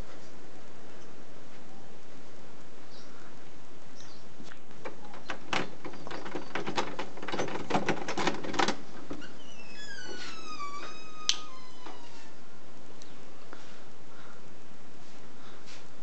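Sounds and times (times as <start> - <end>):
key rattling in door lock: 4.8 - 9.3
door hinge creaking: 4.8 - 12.4.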